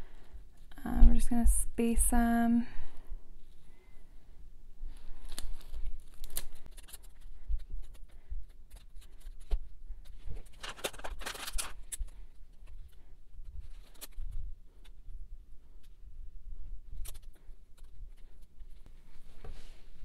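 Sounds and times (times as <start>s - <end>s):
small clicks and rustles: 4.9s - 16.0s, 16.6s - 19.9s
plastic crinkling: 5.0s - 8.1s, 10.2s - 14.8s.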